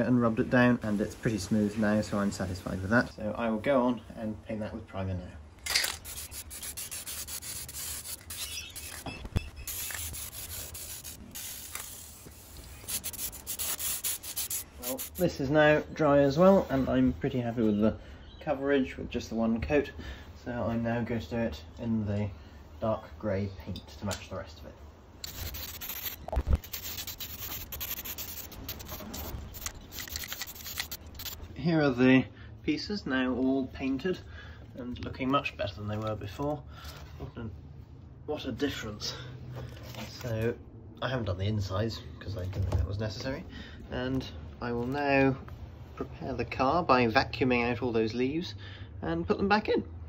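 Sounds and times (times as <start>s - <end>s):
aerosol spray can hissing: 5.8s - 15.2s, 25.2s - 31.4s.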